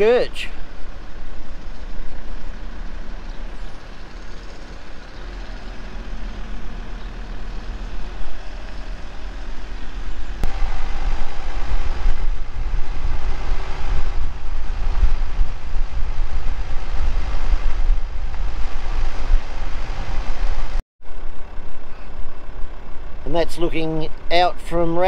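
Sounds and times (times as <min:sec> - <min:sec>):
van driving slowly: 0:00.0 - 0:25.0.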